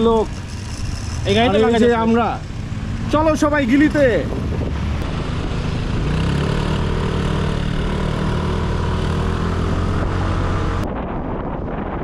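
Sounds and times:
vehicle engine humming: 0.0 - 11.9.

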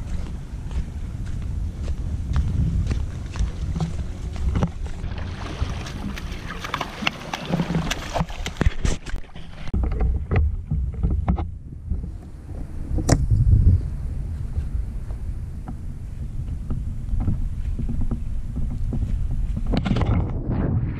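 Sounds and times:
wind rumbling on microphone: 0.0 - 20.9.

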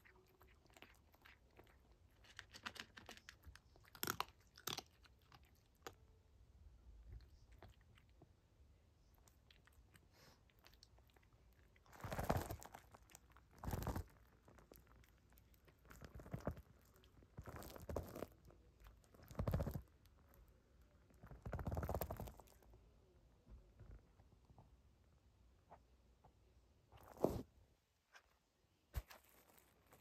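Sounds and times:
cat crunching dry kibble: 0.0 - 6.0, 9.2 - 20.5, 21.2 - 22.6.

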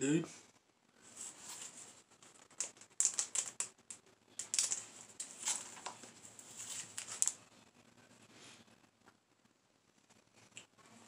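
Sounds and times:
plastic sleeves crinkling: 1.2 - 7.5.

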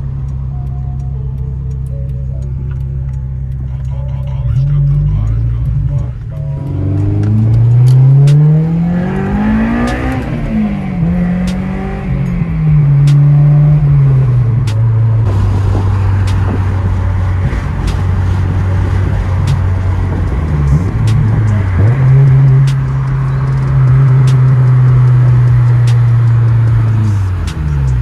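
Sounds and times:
car engine revving: 0.0 - 28.0
road and wind noise: 0.0 - 28.0.

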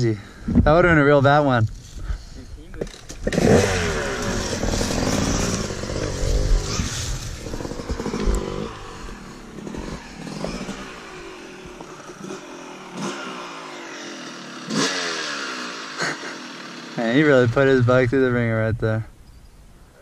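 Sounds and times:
dirt bike engine revving: 2.8 - 18.6.

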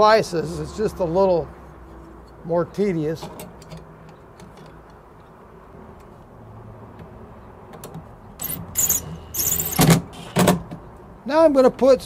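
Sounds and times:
drill driving screws into metal: 8.4 - 10.6.

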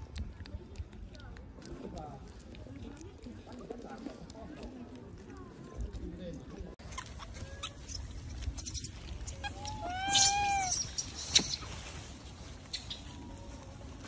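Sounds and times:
macaque coo calls: 9.3 - 11.4.

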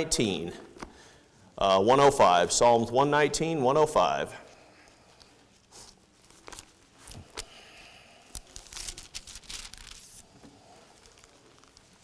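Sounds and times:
thin paper pages rustling: 4.9 - 7.6, 8.2 - 12.0.

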